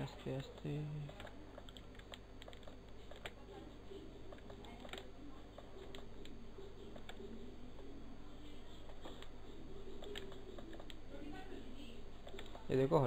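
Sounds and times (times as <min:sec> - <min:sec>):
low steady hum: 0:00.0 - 0:13.0
mouse and keyboard clicking: 0:00.4 - 0:03.4, 0:04.2 - 0:07.3, 0:08.9 - 0:11.0, 0:12.2 - 0:12.7.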